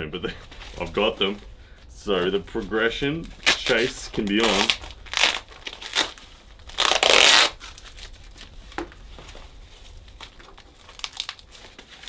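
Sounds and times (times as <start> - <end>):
packaging tearing open: 3.4 - 8.5, 10.2 - 12.0.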